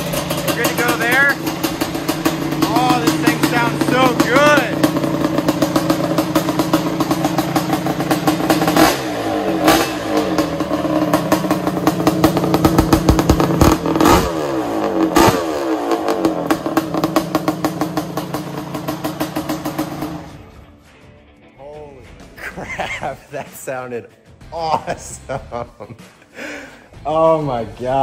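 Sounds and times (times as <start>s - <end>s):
engine throttle blips: 0.0s - 20.4s
two-stroke engine idling: 0.0s - 20.4s.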